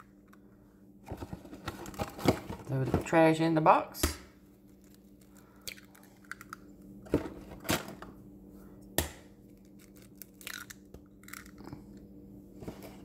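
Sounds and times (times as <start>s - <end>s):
faint steady hum: 0.0s - 13.0s
eggshells cracking against a bowl: 4.7s - 6.8s, 9.0s - 11.8s.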